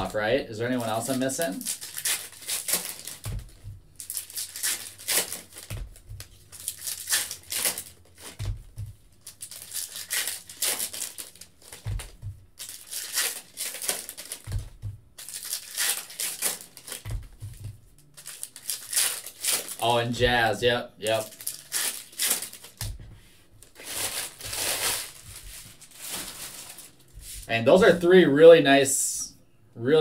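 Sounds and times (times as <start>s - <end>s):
foil wrappers crinkling and tearing: 0.0s - 8.5s, 9.1s - 17.1s, 18.0s - 20.0s, 21.0s - 23.0s, 23.6s - 27.2s
soft low thump: 3.3s - 4.0s, 5.7s - 6.4s, 11.8s - 12.5s, 17.1s - 17.9s.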